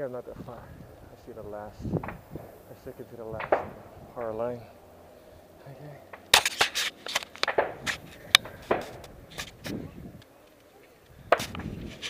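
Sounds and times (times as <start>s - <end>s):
camera handling noise: 6.2s - 12.0s.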